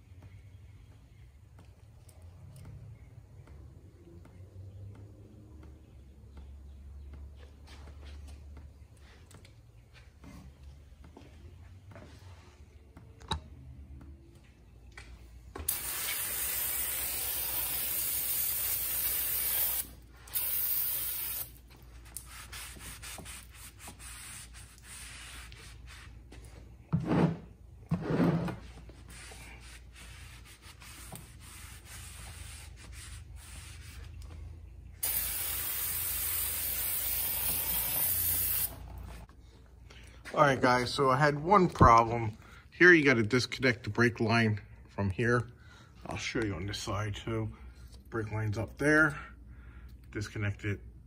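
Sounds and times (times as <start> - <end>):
aerosol spray can hissing: 15.7 - 21.6, 35.0 - 38.8.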